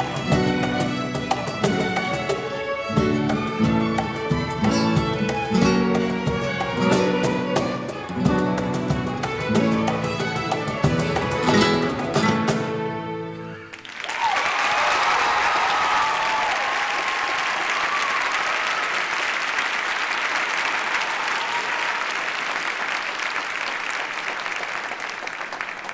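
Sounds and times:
audience cheering: 13.5 - 25.9
audience applause: 13.6 - 25.9.

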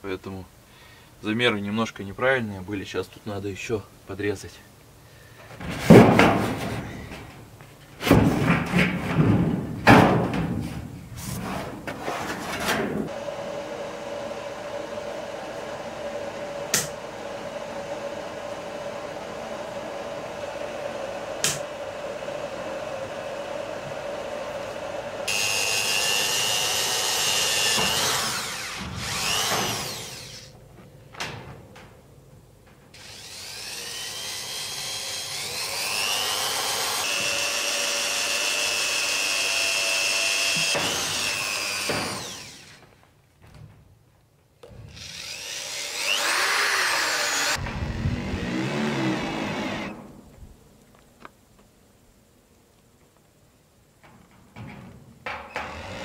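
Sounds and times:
cordless drill whirring: 24.1 - 30.5, 33.0 - 42.8, 44.9 - 50.0.

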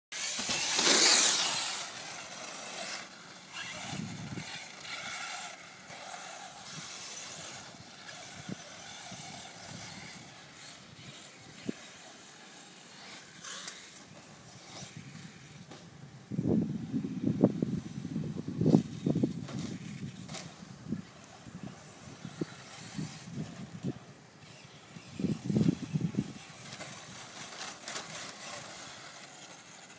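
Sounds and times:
electric motor whine: 0.2 - 18.0.

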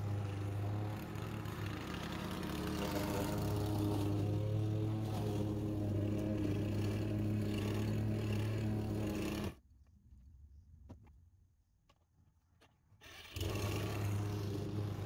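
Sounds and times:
lawn mower engine running: 0.0 - 9.6, 13.1 - 15.0.

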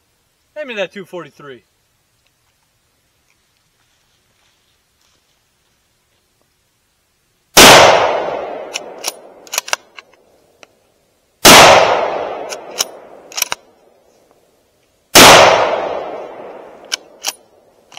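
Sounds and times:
rifle shots with echo: 7.6 - 9.5, 11.4 - 13.4, 15.2 - 17.3
rifle bolt metallic clicks: 8.6 - 10.2, 12.4 - 13.7, 16.4 - 17.4.

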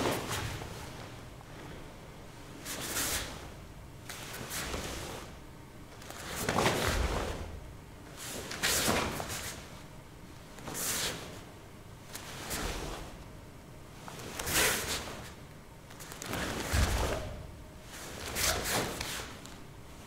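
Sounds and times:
bare foot thump on mat: 16.6 - 17.5.

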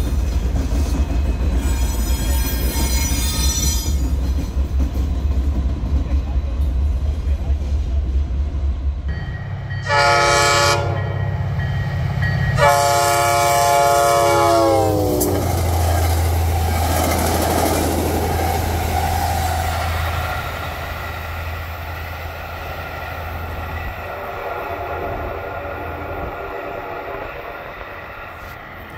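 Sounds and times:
locomotive engines and wheels: 0.0 - 9.9, 10.9 - 28.9
diesel locomotive horn: 9.7 - 15.9.

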